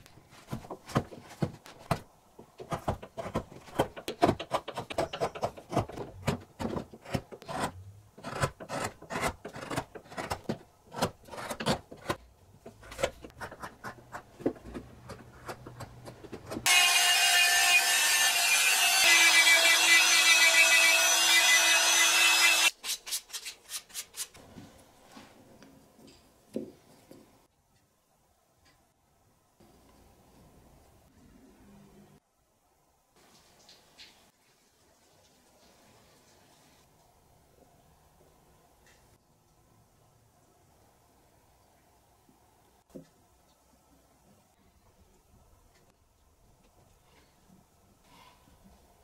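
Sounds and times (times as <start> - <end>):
rotary tool sanding wood: 16.6 - 22.7.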